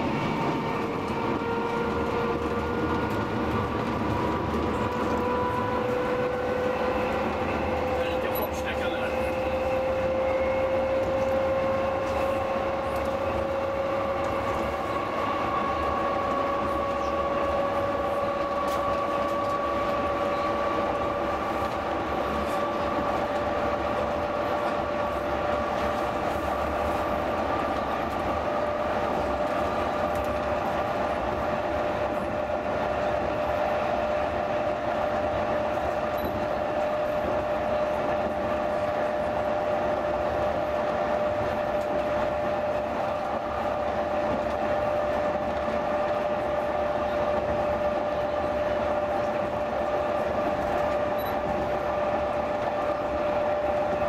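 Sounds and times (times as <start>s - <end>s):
electric train motor whine: 0.0s - 54.0s
train running gear rumble: 0.0s - 54.0s.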